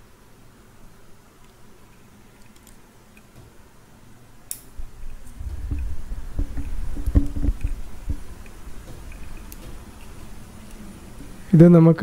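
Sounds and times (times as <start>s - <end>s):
sharp click: 4.5s - 4.7s
handling rubbing and rumbling: 4.8s - 11.7s.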